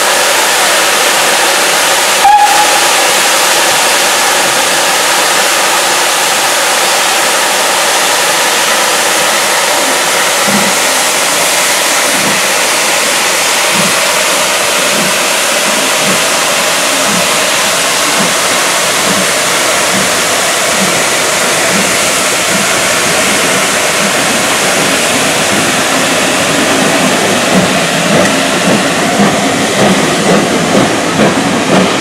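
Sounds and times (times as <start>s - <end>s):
steam hissing: 0.0s - 32.0s
sharp train whistle toot: 2.2s - 3.3s.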